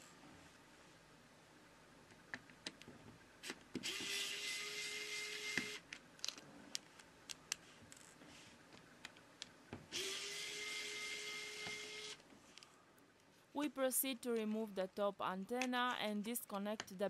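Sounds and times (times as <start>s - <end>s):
electric screwdriver whirring: 3.8s - 5.8s, 9.9s - 12.2s.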